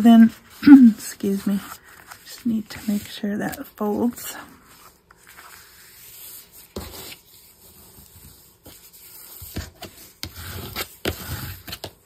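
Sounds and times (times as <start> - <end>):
hands rubbing cardstock: 0.0 - 12.0.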